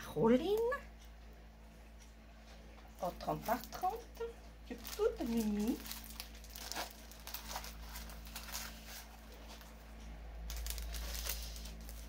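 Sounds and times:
plastic packaging crinkling: 4.7 - 9.8, 10.5 - 12.0.

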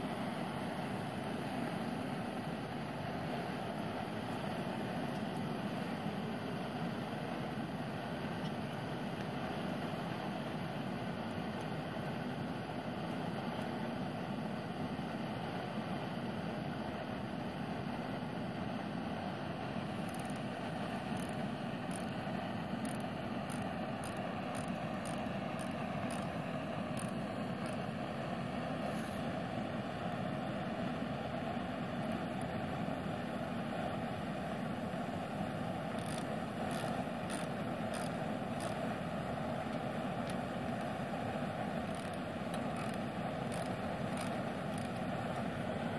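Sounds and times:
faint light ticks: 5.1 - 5.5, 39.7 - 41.0, 41.9 - 45.5.

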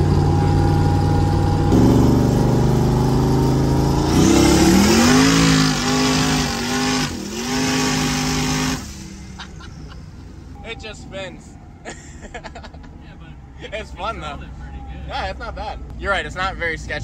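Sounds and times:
drag car engine revving: 0.0 - 10.5.

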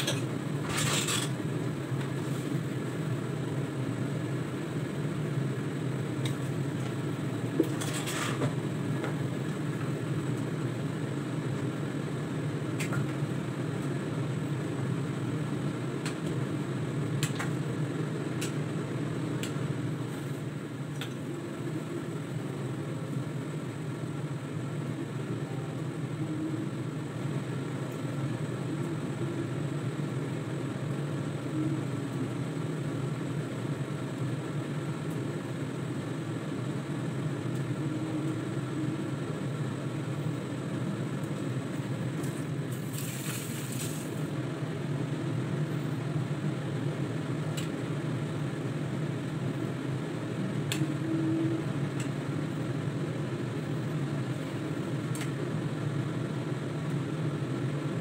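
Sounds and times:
low mechanical hum: 0.0 - 58.0
short hiss: 42.8 - 44.2.

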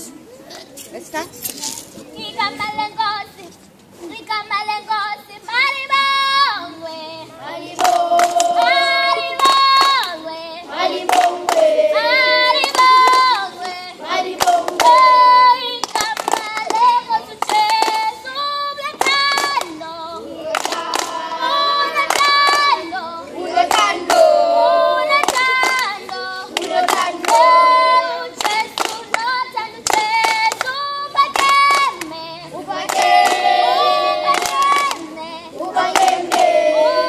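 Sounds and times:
children singing: 5.6 - 37.0
children clapping: 7.8 - 10.3, 11.0 - 18.2, 18.9 - 19.8, 20.5 - 23.0, 23.6 - 24.3, 25.1 - 32.2, 32.8 - 35.1, 35.7 - 36.6.

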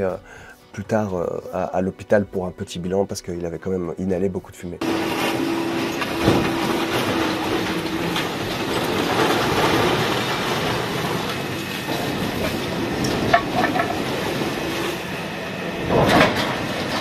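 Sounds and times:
metal scraping and rumbling: 4.8 - 17.0.

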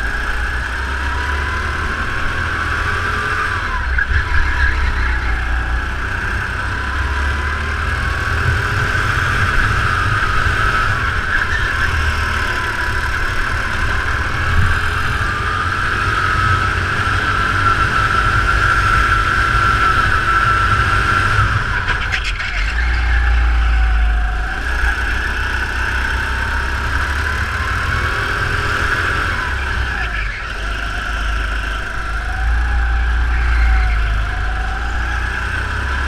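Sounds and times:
kart engine racing: 0.0 - 36.0.

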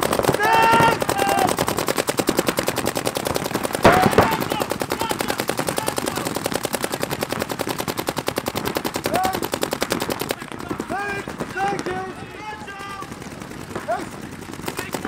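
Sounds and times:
paintball markers firing: 0.0 - 15.0
people shouting: 0.3 - 1.6, 3.9 - 6.3, 10.4 - 13.2
loud crack: 2.7 - 12.2.

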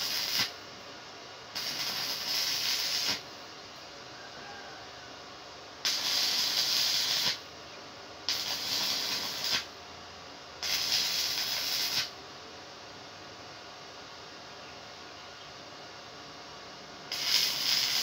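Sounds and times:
welding arc hissing: 0.0 - 0.6, 1.6 - 3.4, 5.8 - 7.5, 8.3 - 9.8, 10.6 - 12.2, 17.1 - 18.0.

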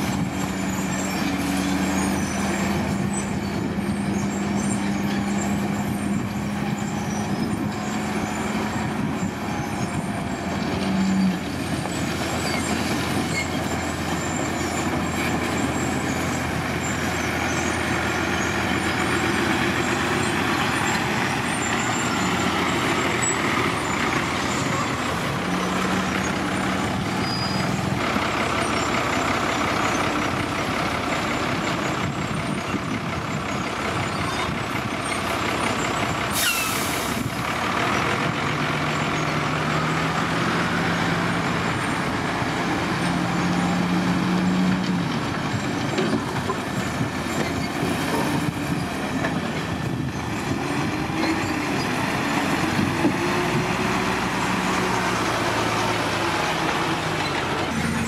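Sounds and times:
diesel truck engines running: 0.0 - 58.0
air brakes hissing: 36.3 - 37.3.

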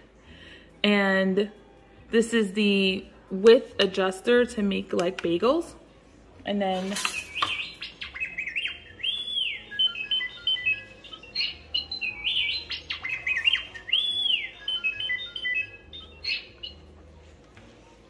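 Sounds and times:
electronic beeps and whistles: 8.2 - 16.8.

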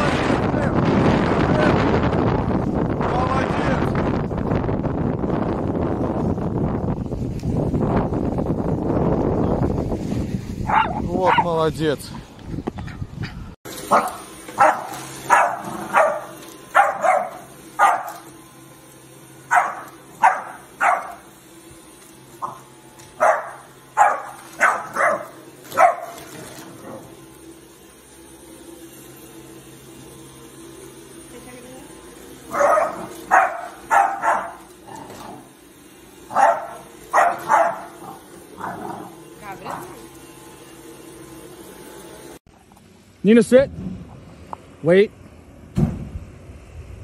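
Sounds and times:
puppy barking: 10.6 - 11.5, 13.9 - 18.3, 19.5 - 21.3, 22.4 - 26.3, 32.5 - 35.2, 36.3 - 39.1.

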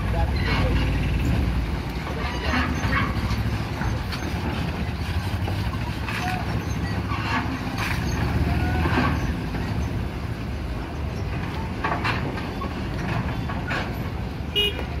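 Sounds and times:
vehicle engines idling: 0.0 - 15.0
short knocks and clanks: 11.1 - 15.0.

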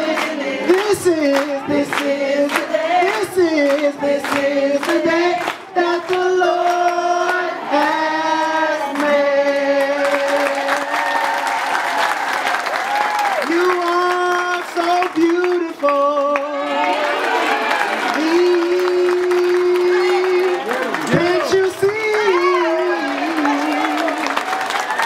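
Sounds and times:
group singing in unison: 0.0 - 11.4, 18.2 - 24.4
hands clapping a steady beat: 0.0 - 16.5, 17.1 - 25.0.

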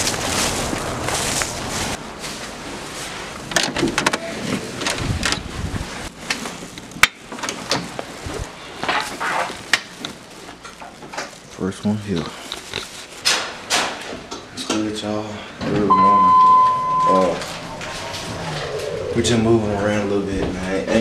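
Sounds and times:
footsteps over leaves and grass: 0.0 - 3.4, 5.6 - 13.7
handling noise: 15.9 - 19.4.

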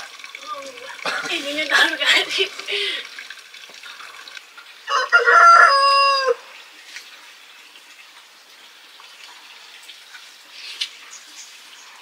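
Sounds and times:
rooster crowing: 4.9 - 6.5.

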